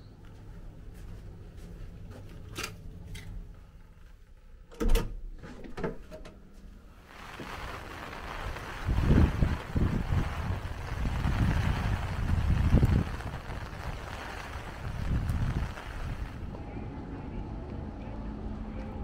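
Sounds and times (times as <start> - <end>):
outdoor hiss: 6.9 - 16.6.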